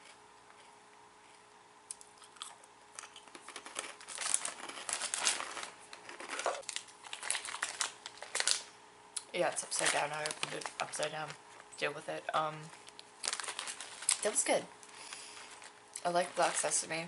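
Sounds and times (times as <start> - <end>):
crunchy chewing: 0.0 - 9.3, 12.8 - 16.4
plastic wrapper crinkling: 3.0 - 11.7, 12.6 - 17.0.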